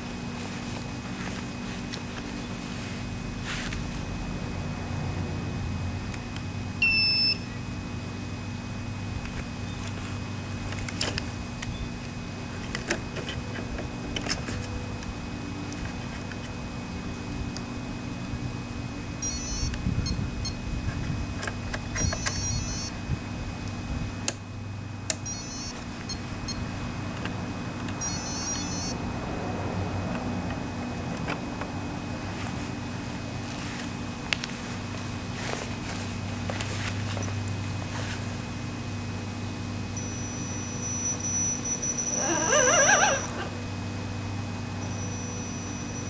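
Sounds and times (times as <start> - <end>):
low electronic hum: 0.0 - 46.0
rapid high electronic beeps: 19.2 - 20.2, 22.0 - 22.9, 25.3 - 25.7, 28.0 - 28.9, 40.0 - 42.2, 44.8 - 46.0.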